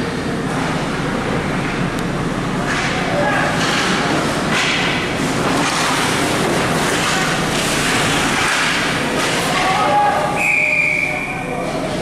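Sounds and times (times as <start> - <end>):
crowd and rink din: 0.0 - 12.0
sharp whistle: 10.4 - 11.5.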